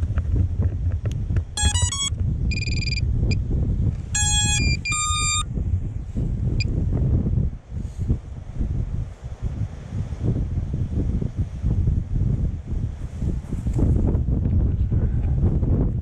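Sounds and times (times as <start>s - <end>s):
strong wind buffeting microphone: 0.0s - 16.0s
electronic beeps: 1.6s - 3.0s, 4.2s - 5.4s.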